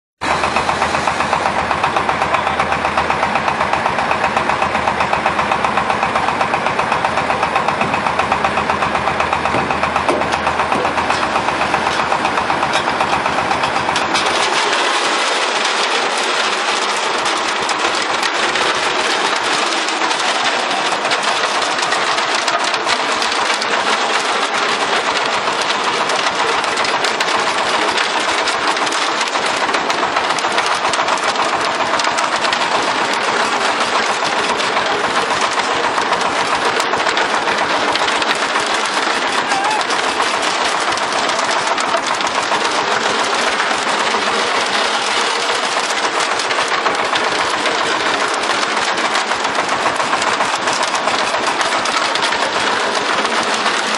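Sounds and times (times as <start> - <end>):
concrete mixer running: 0.2 - 53.9.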